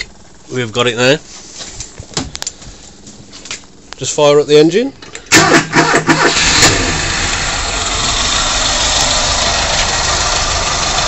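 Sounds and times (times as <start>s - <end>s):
car engine starting and idling: 5.2s - 11.0s.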